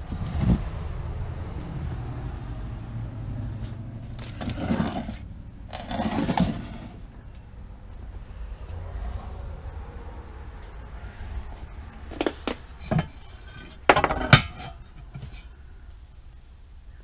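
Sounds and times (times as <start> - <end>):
steady low rumble: 0.0 - 17.0
wooden planes handled on shelf: 12.1 - 15.5.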